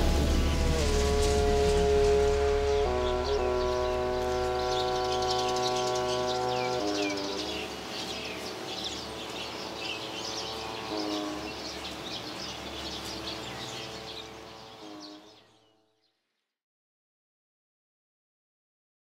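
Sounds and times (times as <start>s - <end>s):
low rumble: 0.0s - 6.6s
held tones shifting pitch: 0.0s - 8.5s
small birds chirping: 2.7s - 16.2s.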